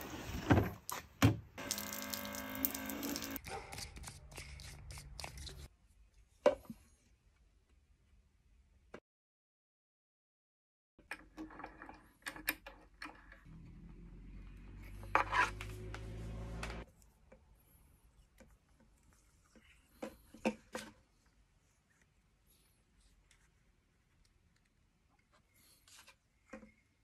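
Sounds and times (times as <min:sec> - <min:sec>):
small power tool motor: 0:01.6 - 0:03.4.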